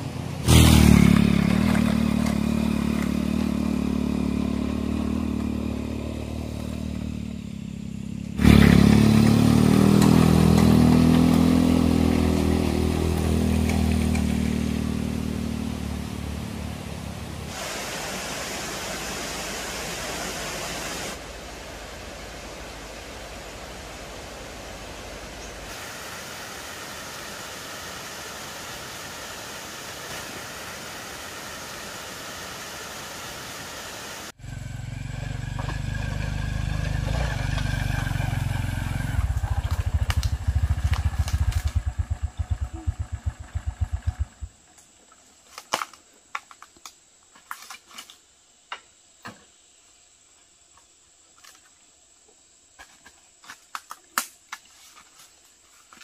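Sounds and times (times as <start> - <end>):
motorbike engine running: 0.4 - 15.9, 34.4 - 44.6.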